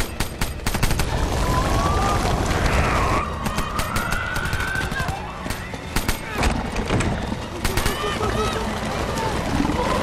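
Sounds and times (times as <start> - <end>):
gunshots: 0.0 - 6.7
dense rushing din: 0.9 - 10.0.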